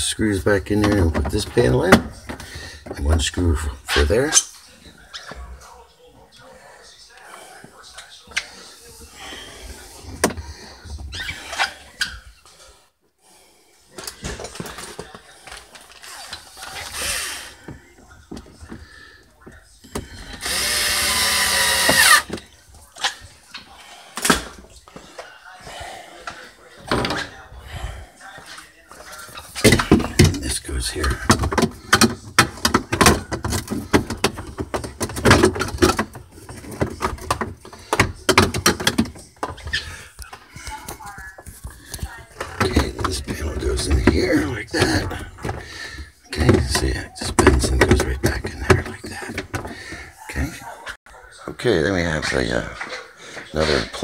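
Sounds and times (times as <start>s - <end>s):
plastic panels clicking and knocking: 29.7s - 39.8s, 46.4s - 49.8s.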